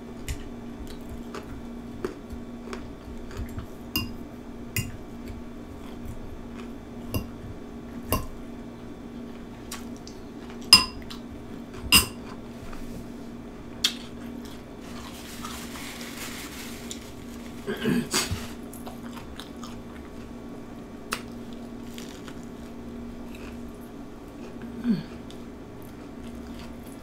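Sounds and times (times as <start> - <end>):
steady low hum: 0.0 - 27.0
fork clinking on glass bowl: 4.0 - 4.2, 10.8 - 11.0, 12.0 - 12.2.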